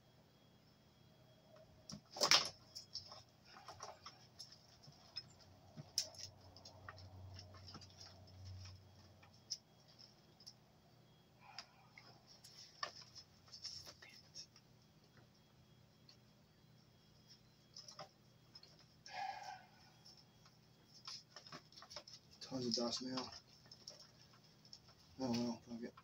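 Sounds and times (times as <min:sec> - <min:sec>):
wires and connectors clicking: 0:01.5 - 0:10.6
scraping rustle: 0:12.2 - 0:14.6.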